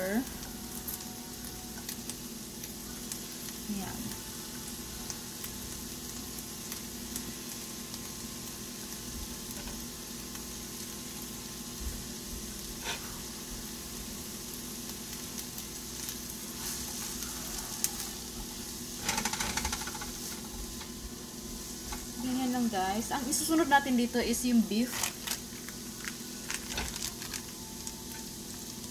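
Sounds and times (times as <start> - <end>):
vegetables sizzling in oil: 0.0 - 28.9
spatula scraping pan: 12.8 - 13.2, 19.0 - 20.6.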